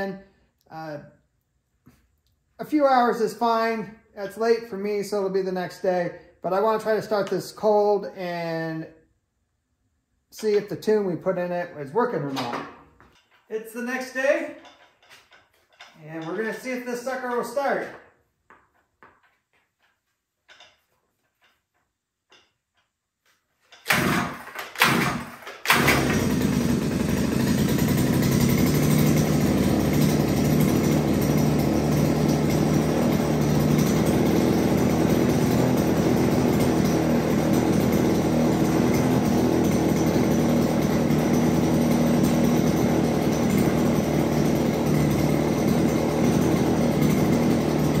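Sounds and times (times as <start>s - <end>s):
two-stroke engine starting: 23.7s - 48.0s.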